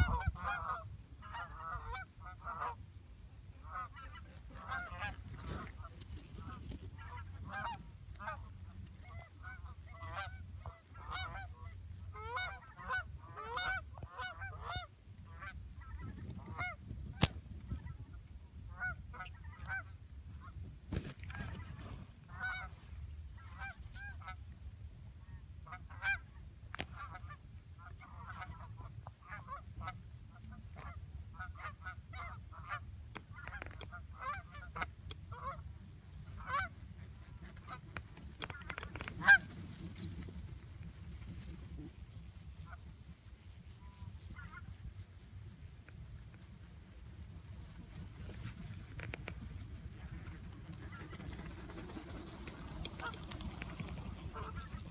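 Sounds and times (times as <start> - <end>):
geese honking: 0.0 - 2.8, 3.6 - 16.8, 21.2 - 22.8, 26.9 - 40.4, 42.5 - 45.0, 50.2 - 54.9.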